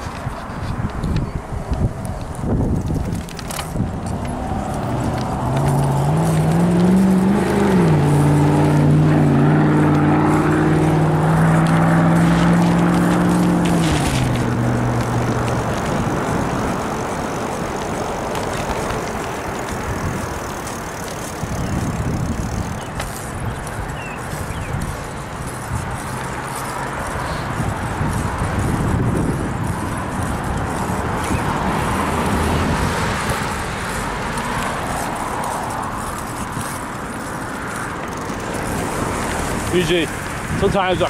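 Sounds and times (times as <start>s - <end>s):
steady rushing noise: 0.0s - 41.0s
car driving past: 4.3s - 19.5s.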